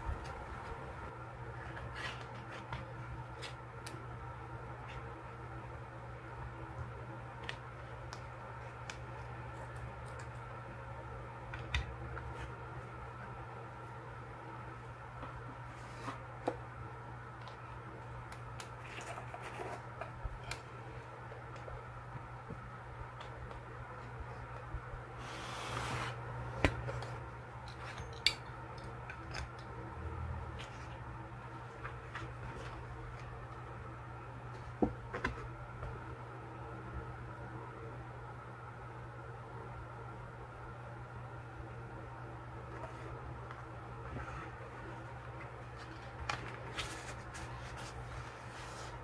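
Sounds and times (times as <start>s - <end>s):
steady low hum: 0.0s - 49.0s
paper sliding rustle: 25.2s - 26.2s, 45.7s - 49.0s.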